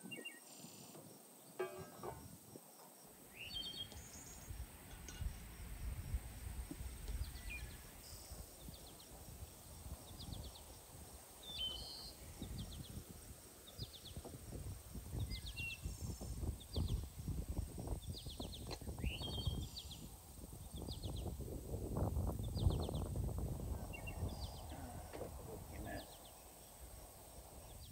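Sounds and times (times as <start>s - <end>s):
rustling and knocks on wooden board: 1.6s - 2.9s
small birds chirping: 3.3s - 5.6s, 7.0s - 21.4s, 22.0s - 27.9s.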